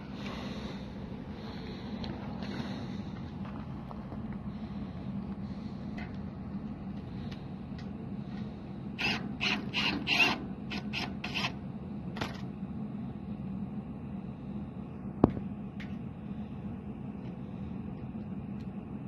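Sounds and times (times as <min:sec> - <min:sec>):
steady low hum: 0:00.0 - 0:19.0
short rasping ratchet pulls: 0:09.0 - 0:11.6.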